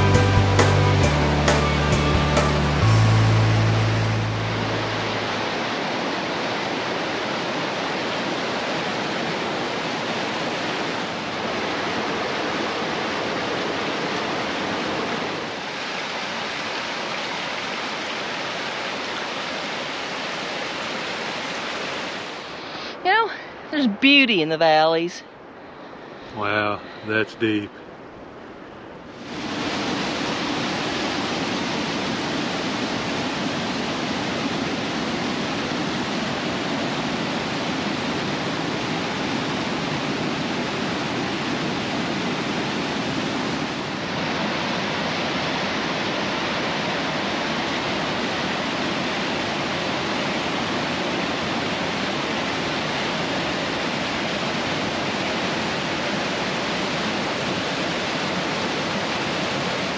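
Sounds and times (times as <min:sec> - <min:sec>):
water rushing over rocks: 0:00.0 - 0:23.4, 0:29.1 - 0:59.9.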